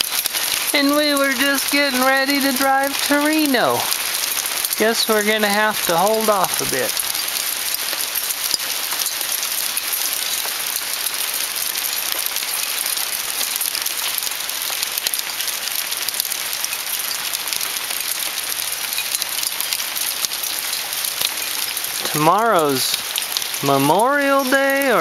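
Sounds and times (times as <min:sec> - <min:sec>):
hail hitting the ground: 0:00.0 - 0:25.0.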